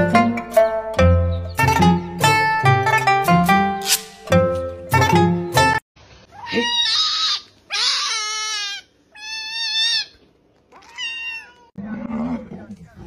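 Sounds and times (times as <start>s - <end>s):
kitten meowing: 6.3s - 11.7s.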